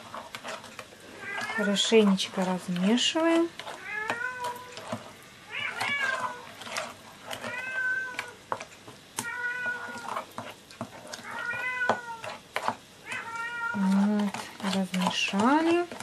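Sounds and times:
metal spoon scraping a bowl: 0:00.0 - 0:05.1, 0:05.7 - 0:08.2, 0:09.7 - 0:16.0
cat meowing: 0:03.8 - 0:04.7, 0:05.5 - 0:06.5, 0:07.4 - 0:08.4, 0:09.2 - 0:10.1, 0:11.2 - 0:12.3, 0:13.0 - 0:13.8.

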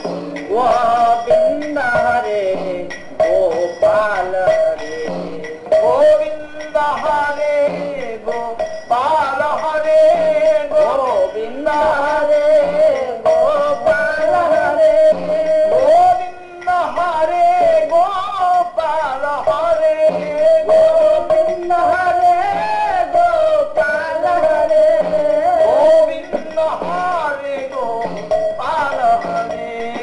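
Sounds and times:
held drone tone: 0:00.0 - 0:17.9
man singing drawn-out melody: 0:00.0 - 0:30.0.

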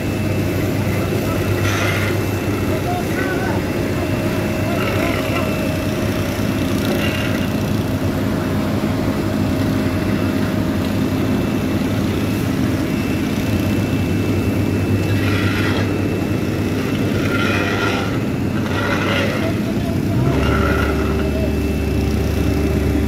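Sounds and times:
diesel engine running: 0:00.0 - 0:23.0
shovels scraping asphalt: 0:15.0 - 0:15.9, 0:17.1 - 0:21.4.

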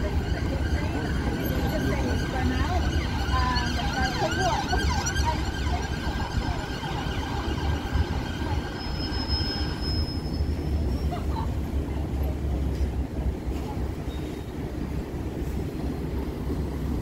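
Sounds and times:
people talking: 0:00.0 - 0:09.8, 0:10.9 - 0:14.2
city traffic rumble: 0:00.0 - 0:17.0.

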